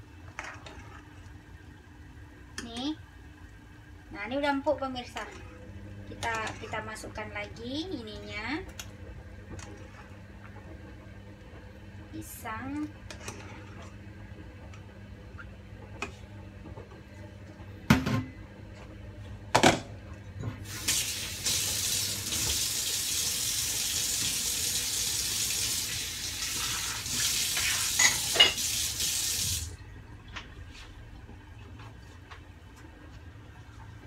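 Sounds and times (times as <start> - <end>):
kitchen tap running: 20.6 - 29.8.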